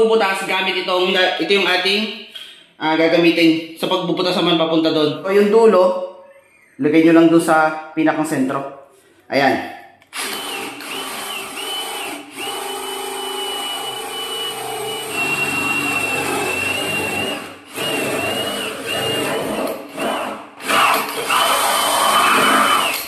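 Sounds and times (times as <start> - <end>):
power drill boring into wood: 10.1 - 23.0.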